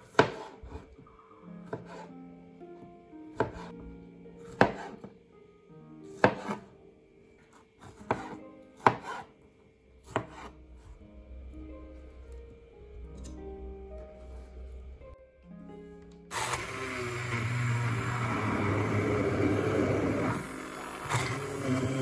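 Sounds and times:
knife chopping on plastic board: 0:00.0 - 0:00.9, 0:01.7 - 0:02.1, 0:03.4 - 0:03.7, 0:04.5 - 0:05.1, 0:06.2 - 0:06.7, 0:07.8 - 0:09.3, 0:10.1 - 0:10.5.

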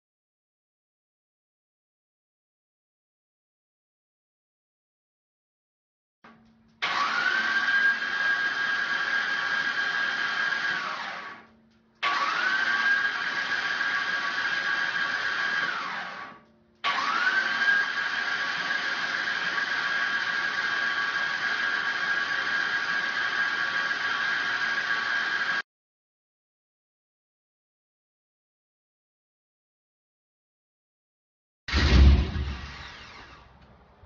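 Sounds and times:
starter motor whine: 0:06.3 - 0:25.6, 0:31.7 - 0:33.9.

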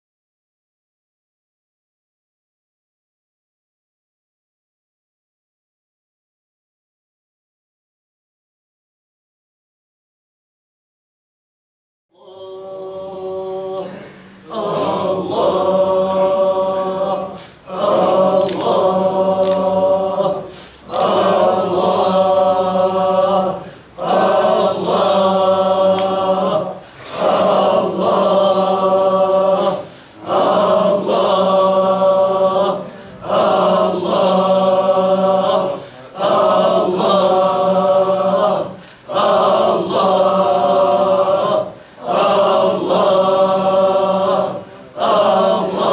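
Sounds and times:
men chanting in unison: 0:12.2 - 0:45.9.

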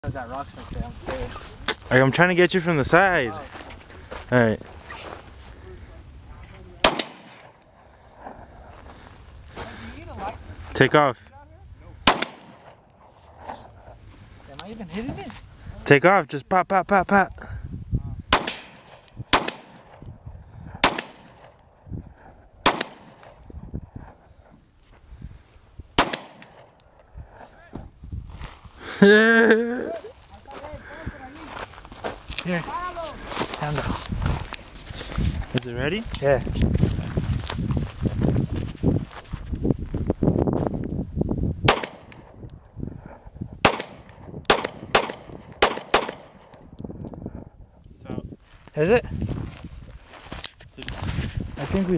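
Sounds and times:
pistol shots: 0:06.8 - 0:07.6, 0:12.0 - 0:12.9, 0:18.3 - 0:20.0, 0:20.8 - 0:21.6, 0:22.6 - 0:23.4, 0:26.0 - 0:26.8, 0:41.7 - 0:42.3, 0:43.6 - 0:46.5.

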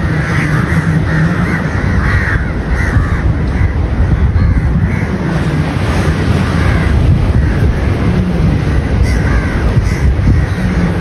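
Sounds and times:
crows cawing: 0:00.0 - 0:11.0
steady low rumble: 0:00.0 - 0:11.0.

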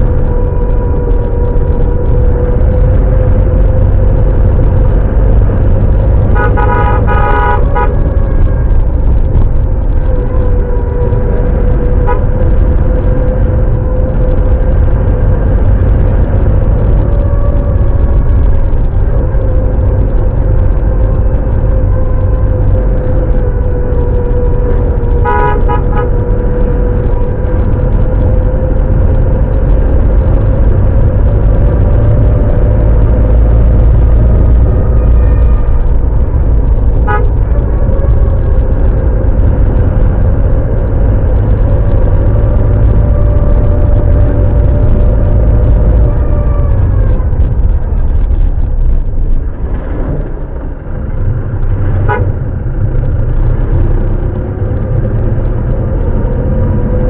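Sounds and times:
car engine and road rumble: 0:00.0 - 0:57.0
car horn toots: 0:06.3 - 0:08.3, 0:12.0 - 0:12.4, 0:25.1 - 0:26.4, 0:37.0 - 0:37.4, 0:52.0 - 0:52.4.

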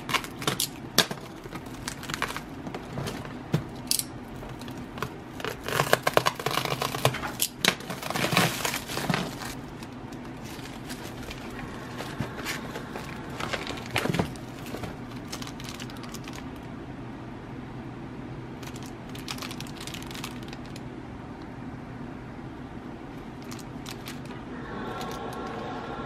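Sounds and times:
plastic packaging crinkling: 0:00.0 - 0:16.7, 0:18.6 - 0:20.9, 0:23.2 - 0:24.4.

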